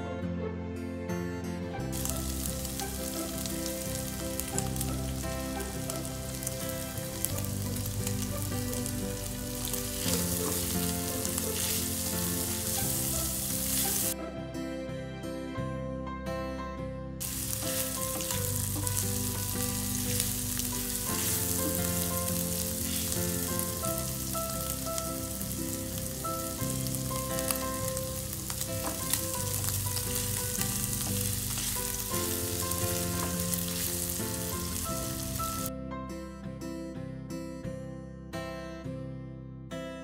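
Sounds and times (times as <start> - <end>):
soft background music: 0.0 - 40.0
food sizzling in hot oil: 1.9 - 14.2, 17.2 - 35.7.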